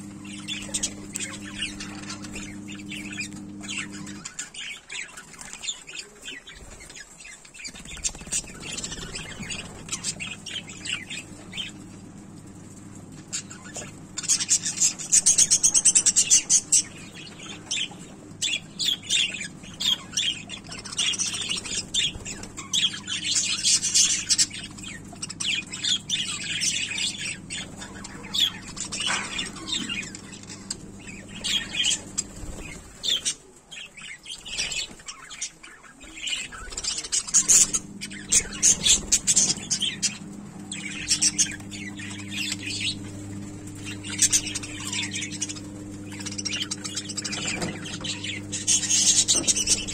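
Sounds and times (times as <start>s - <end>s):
steady low hum: 0.0s - 49.9s
budgerigars chattering: 0.2s - 11.8s, 13.4s - 49.9s.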